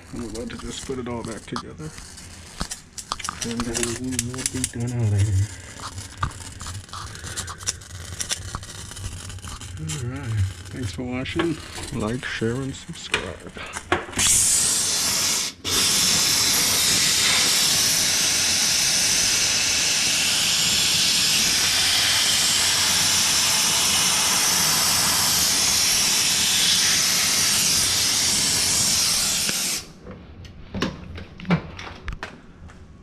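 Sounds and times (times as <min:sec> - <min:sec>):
steam cleaner hissing: 0:00.0 - 0:30.0.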